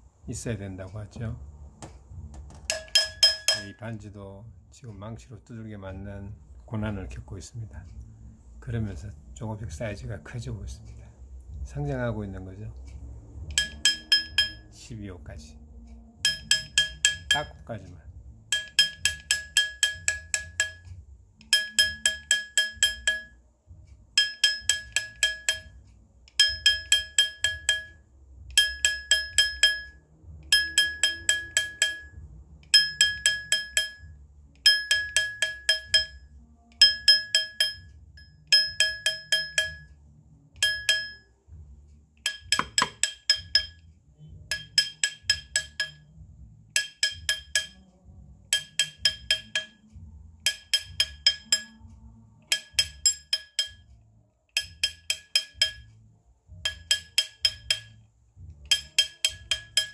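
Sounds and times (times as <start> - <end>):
hammer tapping metal ring: 1.8 - 4.0, 12.8 - 14.8, 16.2 - 17.7, 18.4 - 23.4, 24.1 - 40.0, 40.6 - 41.6, 42.2 - 59.9.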